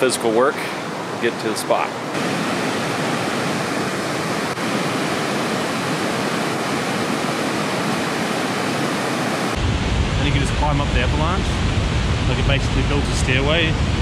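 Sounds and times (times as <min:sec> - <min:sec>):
stream rushing over rocks: 0:02.1 - 0:09.6
low wind rumble on microphone: 0:02.2 - 0:14.0.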